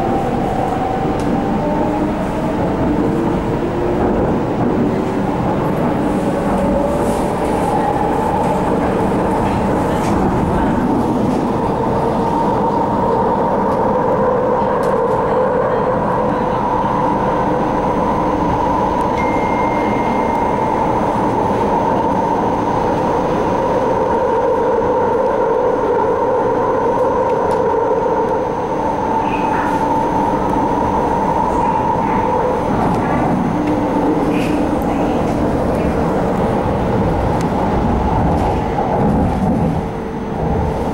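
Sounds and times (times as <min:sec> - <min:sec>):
train wheels rumbling on track: 0:00.0 - 0:40.9.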